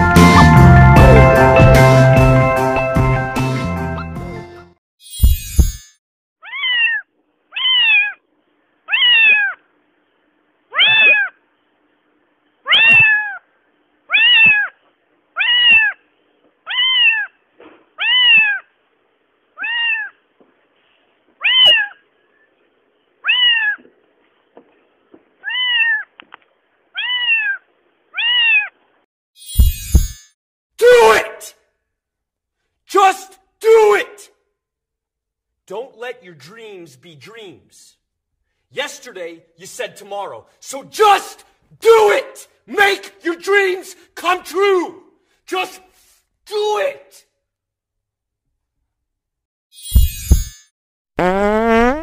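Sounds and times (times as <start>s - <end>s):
cat meowing: 6.4s - 8.2s, 8.9s - 9.6s, 10.7s - 11.4s, 12.7s - 13.4s, 14.1s - 14.8s, 15.4s - 16.0s, 16.7s - 17.3s, 18.0s - 18.7s, 19.6s - 20.2s, 21.4s - 22.0s, 23.2s - 23.9s, 25.4s - 26.1s, 27.0s - 28.8s.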